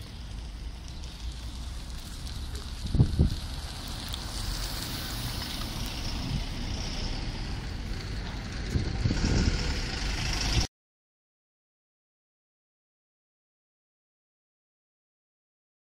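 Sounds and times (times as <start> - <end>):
truck engine rumbling: 0.0 - 10.7
wind on microphone: 2.6 - 3.7, 5.8 - 10.7.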